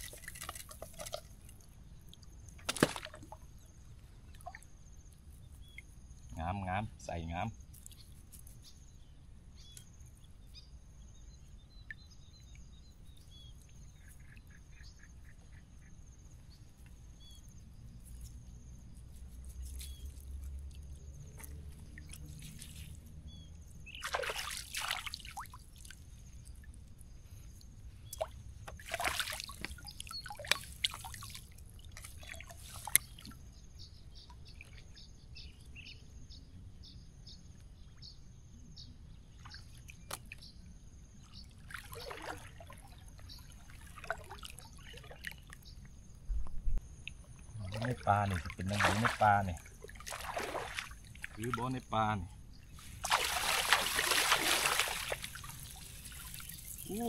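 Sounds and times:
river water splashing: 0.0 - 3.5, 19.6 - 26.8, 28.1 - 33.6, 41.2 - 45.9, 47.0 - 51.9, 52.6 - 57.0
birds chirping: 3.5 - 17.6.

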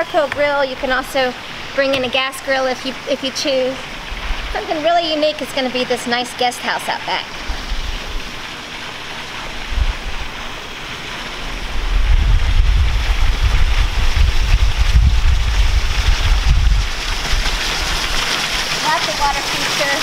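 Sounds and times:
fountains splashing into pool: 0.0 - 20.0
wind buffeting microphone: 9.5 - 10.6, 11.4 - 18.6.

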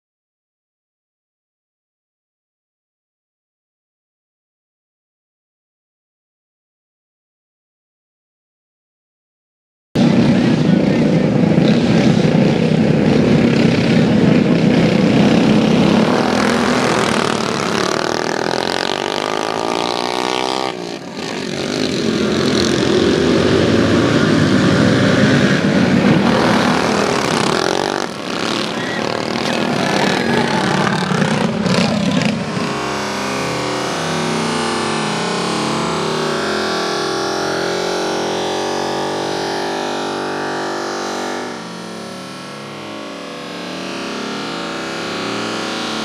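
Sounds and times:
racing kart engines: 10.0 - 46.0.

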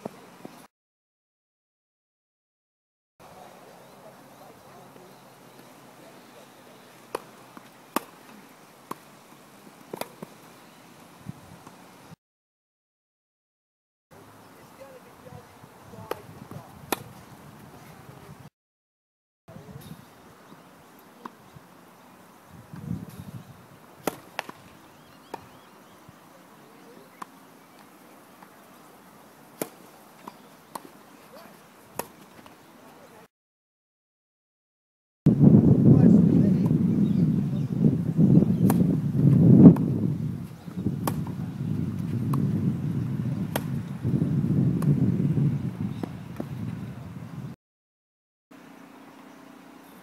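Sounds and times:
faint outdoor background: 0.0 - 0.7, 3.2 - 12.2, 14.1 - 18.5, 19.5 - 33.3, 35.3 - 47.6, 48.5 - 50.0
tennis racquet hitting ball: 7.1 - 8.3, 9.9 - 10.3, 24.0 - 24.7, 29.6 - 30.9, 41.0 - 41.4, 43.5 - 43.8
tennis ball hit by rackets: 7.1 - 9.1, 9.9 - 10.4, 16.0 - 17.2, 24.0 - 25.5, 29.6 - 32.5, 38.6 - 39.0, 40.7 - 41.4, 43.5 - 43.8
faint bird chirps: 24.7 - 28.2
ball knocks: 41.0 - 41.4.

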